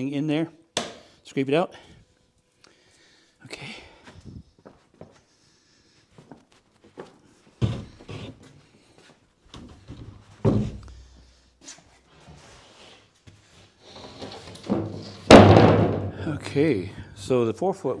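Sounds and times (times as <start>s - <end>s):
wood thuds and knocks: 9.6s - 10.8s, 14.6s - 16.2s.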